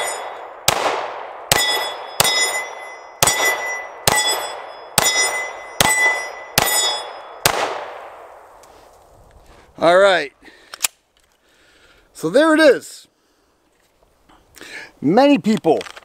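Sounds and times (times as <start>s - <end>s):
steel plate target ringing: 0.0s - 0.6s, 1.5s - 7.5s
pistol shots: 0.0s - 8.3s.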